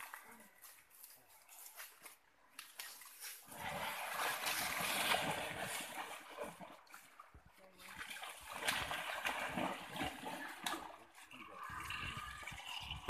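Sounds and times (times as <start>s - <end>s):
water splashing in a stream: 2.6s - 13.0s.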